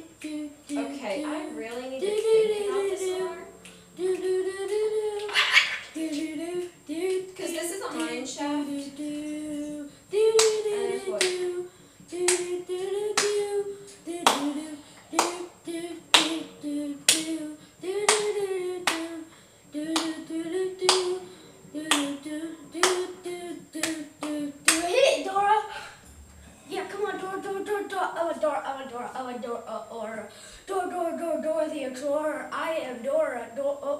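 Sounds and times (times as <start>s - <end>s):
person singing: 0.0s - 25.9s
hands clapping a beat: 3.6s - 4.4s, 6.1s - 8.2s, 10.4s - 11.5s, 12.2s - 13.5s, 14.2s - 15.5s, 16.1s - 16.5s, 17.1s - 17.4s, 18.0s - 19.2s, 19.9s - 21.2s, 21.8s - 22.2s, 22.8s - 23.2s, 23.8s - 24.9s.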